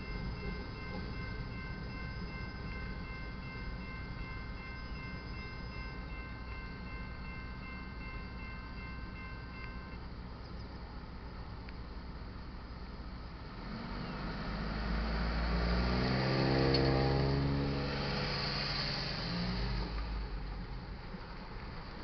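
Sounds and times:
car engine accelerating past: 0:13.6 - 0:20.4.

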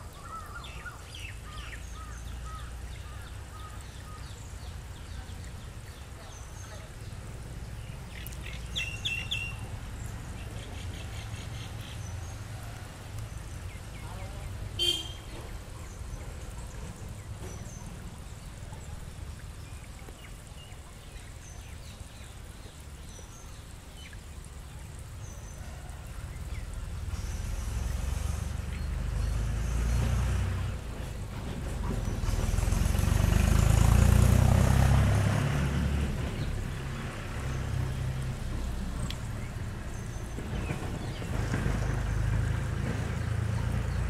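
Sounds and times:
hiss: 0:25.9 - 0:34.0.

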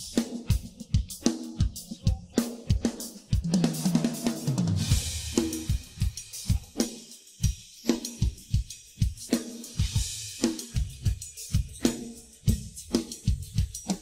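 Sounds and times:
drum groove: 0:00.0 - 0:14.0
crash cymbal: 0:03.5 - 0:13.6.

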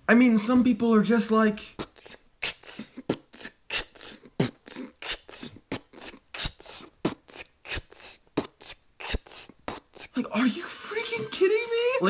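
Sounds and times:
beatboxed mouth-drum beat: 0:01.8 - 0:10.3.

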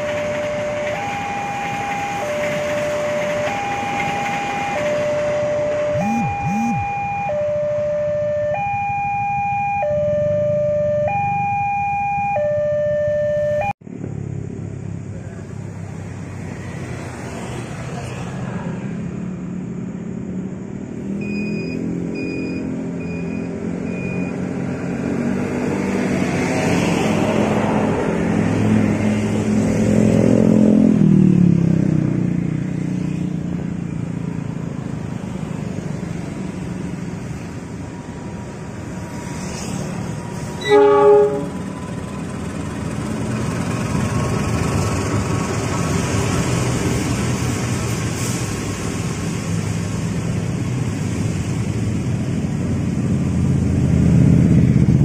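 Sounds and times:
diesel train engine rumble: 0:00.0 - 0:06.4, 0:13.4 - 0:21.2, 0:33.1 - 0:55.0
level-crossing warning bell: 0:00.0 - 0:13.7.

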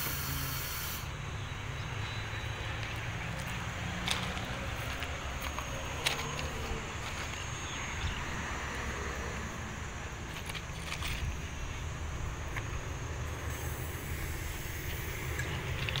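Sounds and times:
diesel engine idling: 0:00.0 - 0:16.0.

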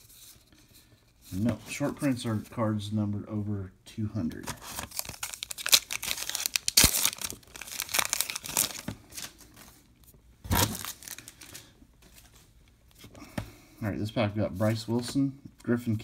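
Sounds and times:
foil wrapper crinkling and tearing: 0:04.6 - 0:09.4, 0:10.5 - 0:11.7.

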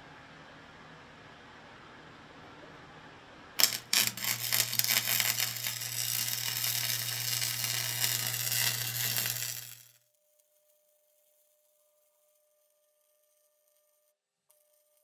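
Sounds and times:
low hum: 0:03.6 - 0:09.9
welder arc pops: 0:03.6 - 0:10.0
welder arc crackling sizzle: 0:03.6 - 0:13.8.

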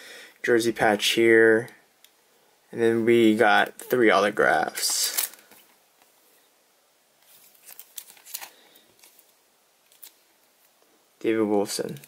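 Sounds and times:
plastic rustling: 0:03.5 - 0:05.8, 0:07.2 - 0:10.8.

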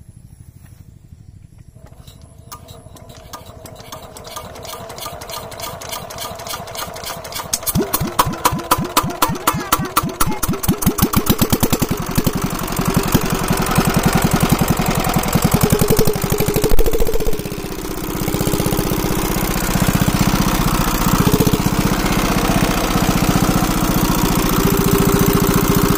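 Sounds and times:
diesel pump engine chugging: 0:01.8 - 0:25.9.

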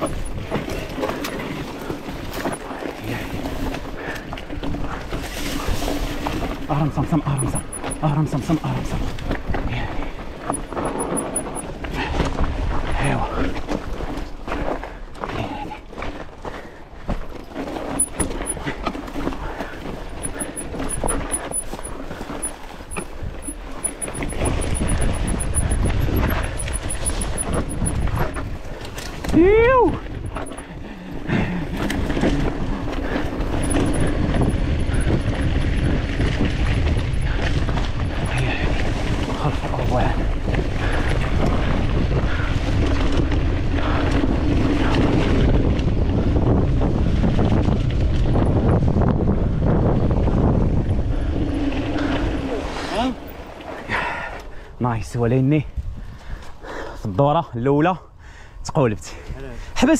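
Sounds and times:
low wind rumble on microphone: 0:00.0 - 0:59.9
bike tyres crunching over rocks: 0:00.3 - 0:07.2, 0:11.7 - 0:18.0, 0:28.0 - 0:49.0.

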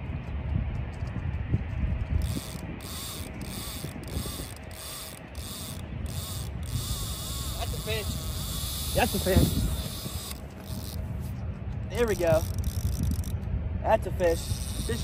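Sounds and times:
fishing reel drag screaming: 0:02.2 - 0:11.0, 0:12.0 - 0:13.3, 0:14.3 - 0:15.0.

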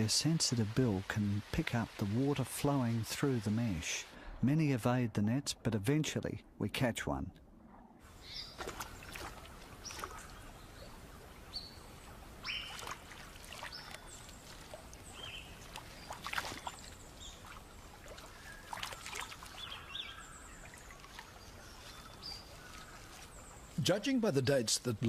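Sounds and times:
water splashing and dripping: 0:00.0 - 0:05.0, 0:08.4 - 0:25.0.

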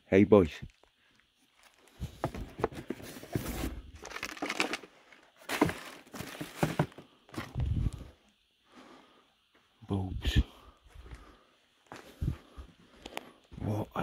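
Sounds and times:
bags and boxes rustling: 0:01.6 - 0:07.7.

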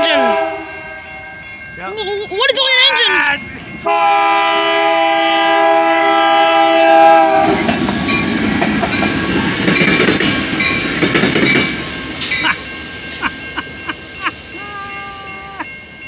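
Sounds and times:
locomotive horn blast: 0:00.0 - 0:01.3, 0:03.8 - 0:07.8
locomotive engine rumble: 0:00.0 - 0:16.0.

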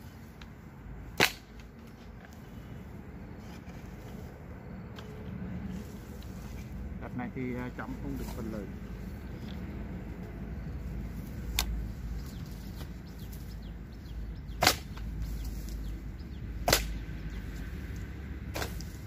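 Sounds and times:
hoe striking the ground: 0:01.2 - 0:01.7, 0:14.5 - 0:15.7, 0:16.6 - 0:17.2, 0:18.5 - 0:19.0.

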